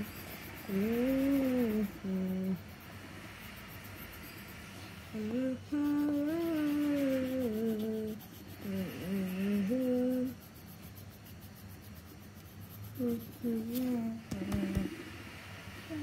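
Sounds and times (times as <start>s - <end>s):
person humming: 0.0s - 2.6s, 5.1s - 10.5s, 12.9s - 15.1s.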